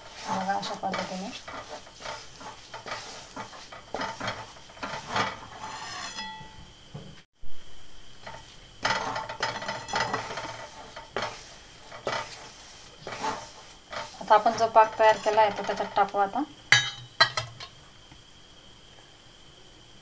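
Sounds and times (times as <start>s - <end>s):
wooden spatula scraping a pan: 0.0s - 6.7s, 8.2s - 16.4s.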